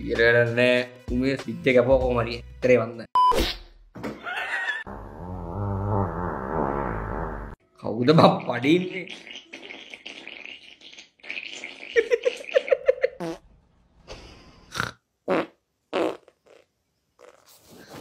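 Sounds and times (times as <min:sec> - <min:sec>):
long fluttering fart: 0:05.1 - 0:07.6.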